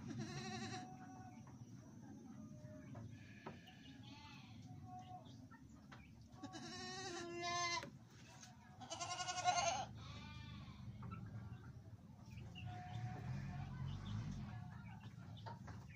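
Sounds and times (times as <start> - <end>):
goats bleating: 0.0 - 1.0, 6.4 - 7.9, 8.8 - 10.9.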